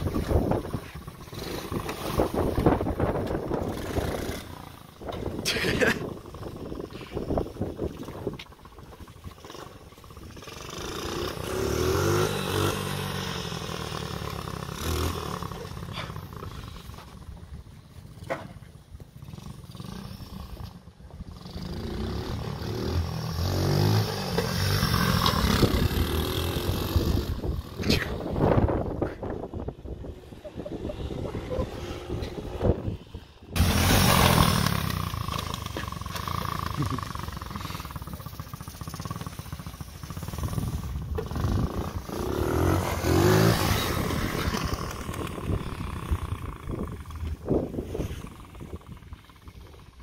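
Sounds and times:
small motorbike engine passing: 0.0 - 18.3, 19.0 - 50.0
motorbike engine revving past: 33.6 - 49.6.

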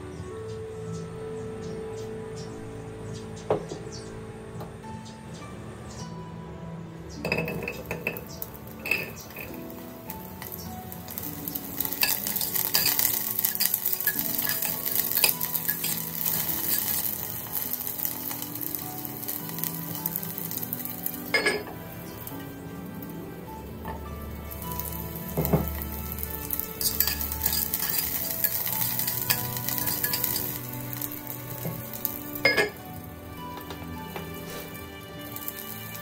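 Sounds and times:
ceramic lid clinking: 7.3 - 8.3, 8.9 - 9.5, 21.4 - 21.7, 32.4 - 32.8
food sizzling in hot oil: 7.3 - 36.0
utensil scraping a pot: 10.3 - 20.5, 26.5 - 32.8.

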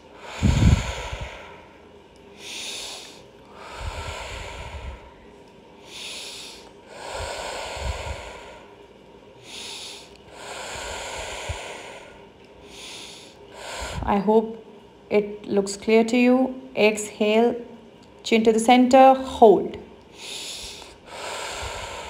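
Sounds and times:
woman breathing deeply: 0.0 - 14.3, 20.1 - 22.0.

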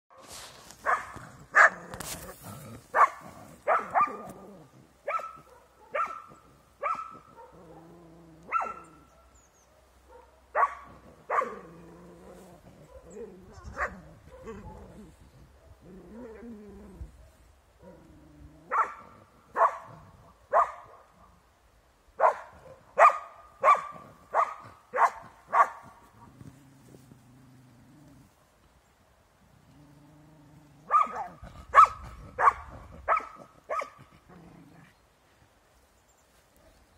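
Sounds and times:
dog barking: 0.8 - 1.8, 2.9 - 4.3, 5.0 - 7.8, 8.5 - 11.7, 12.8 - 13.2, 13.8 - 14.9, 18.7 - 21.3, 22.2 - 25.9, 30.9 - 34.1.

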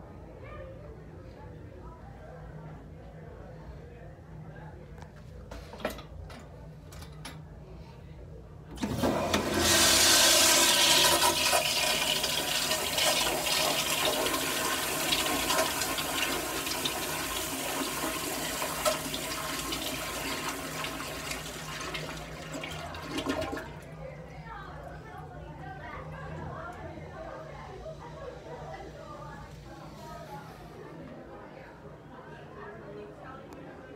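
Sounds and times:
toilet flushing: 8.7 - 23.9.

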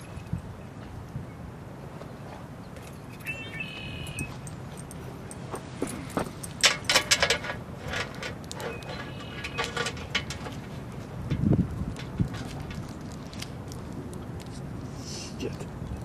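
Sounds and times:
metal chain leash jingling: 4.0 - 7.5.

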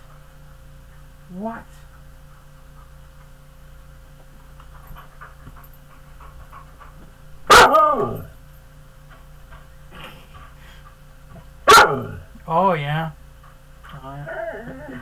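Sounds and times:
dog panting: 1.8 - 3.6, 4.3 - 7.5, 9.0 - 11.6, 13.3 - 14.2
dog barking: 7.5 - 8.3, 11.6 - 12.2.

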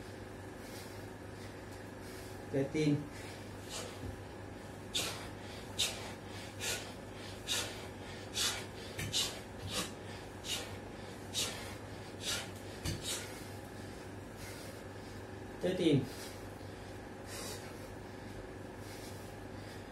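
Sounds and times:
man breathing hard: 0.0 - 19.9.

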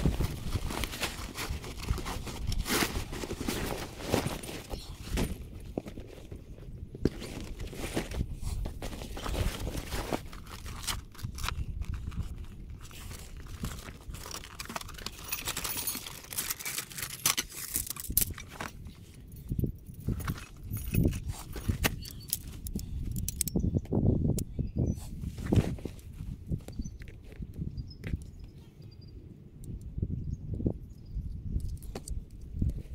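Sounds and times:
metal poles clinking: 14.7 - 23.6.

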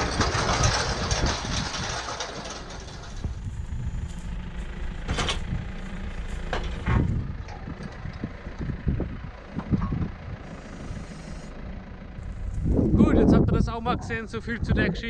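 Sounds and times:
chain harrow clanking and rattling: 0.0 - 4.2, 4.8 - 8.8
tractor diesel engine running: 0.0 - 15.0.

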